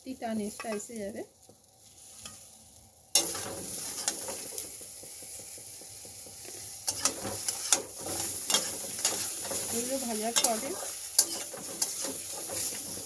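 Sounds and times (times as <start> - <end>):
vegetables sizzling in hot oil: 0.0 - 13.0
metal spatula scraping pan: 3.2 - 13.0.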